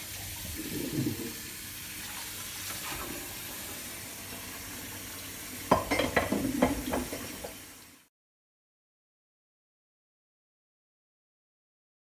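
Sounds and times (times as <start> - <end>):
water boiling in a pan: 0.0 - 8.1
spoon knocking and scraping a pan: 5.7 - 7.6.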